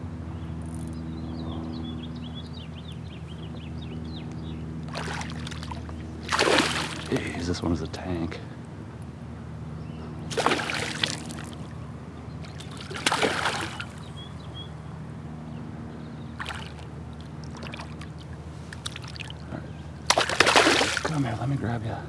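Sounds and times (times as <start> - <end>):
fish splashing at surface: 4.9 - 7.2, 10.3 - 11.7, 12.5 - 14.0, 16.4 - 19.4, 20.1 - 21.2.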